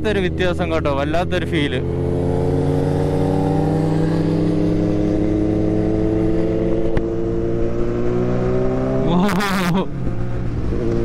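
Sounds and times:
motorcycle engine running: 0.0 - 9.0
wind rushing: 1.8 - 9.0.

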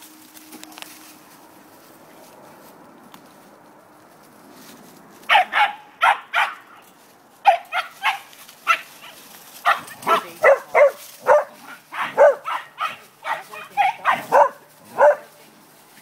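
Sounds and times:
dog barking high-pitched: 5.3 - 6.7, 7.4 - 8.9, 9.6 - 15.3.

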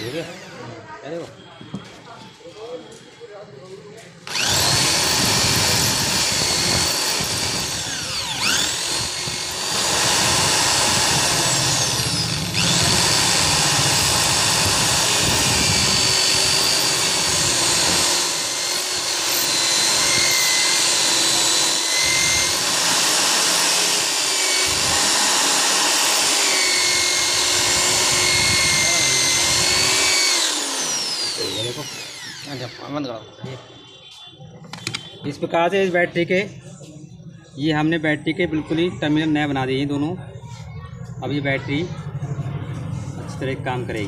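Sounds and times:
electric drill boring into metal: 4.2 - 33.0.

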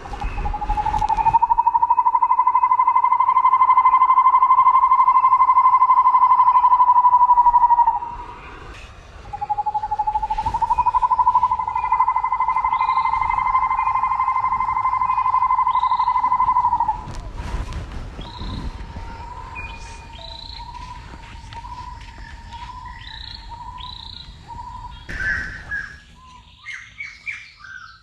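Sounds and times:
faint clicks and chirps: 17.6 - 24.4.

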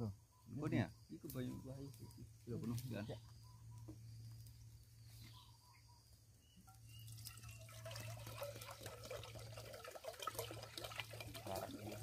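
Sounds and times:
water pouring into metal pot: 6.9 - 12.0.

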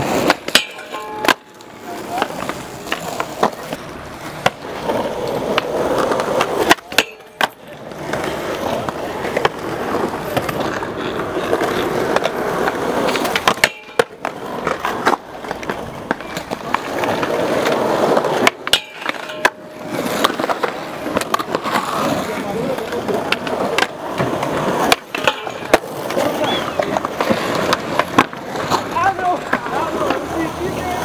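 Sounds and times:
skateboard scraping metal handrail: 0.0 - 31.0
skateboard wheels rolling on concrete: 0.0 - 31.0
skateboard pop and landing clacks: 5.4 - 9.6, 12.1 - 22.2, 23.3 - 28.9.

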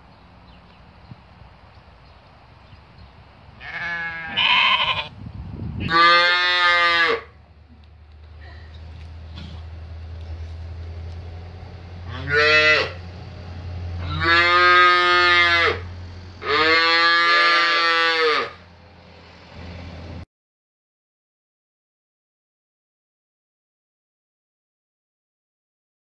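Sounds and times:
calves mooing: 3.6 - 5.1, 5.8 - 7.3, 12.1 - 13.0, 14.0 - 18.6.

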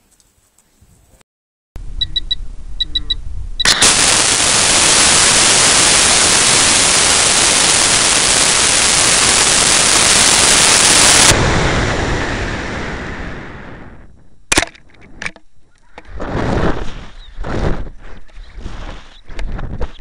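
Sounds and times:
short electronic beeps: 2.0 - 3.8
rocket motor rush: 3.6 - 14.2.

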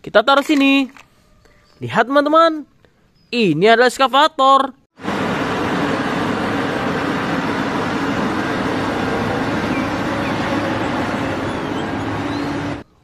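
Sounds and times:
heavy diesel engines rumbling: 5.0 - 12.9.

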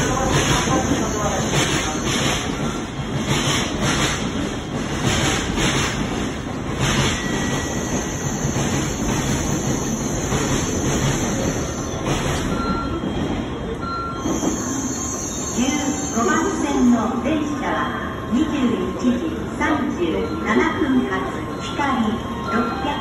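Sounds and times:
train rumbling and slowing: 0.0 - 23.0
train brake squeals: 0.1 - 3.5, 6.8 - 16.6.

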